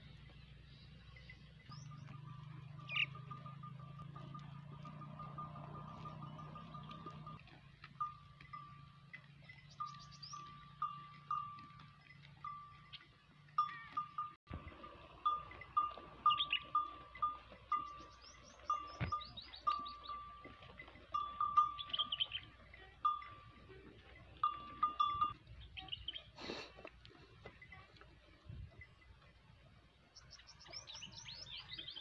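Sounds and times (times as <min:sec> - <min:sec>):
sheep bell clanking: 0:00.0 - 0:32.0
high chirps: 0:09.5 - 0:20.5, 0:21.1 - 0:23.5.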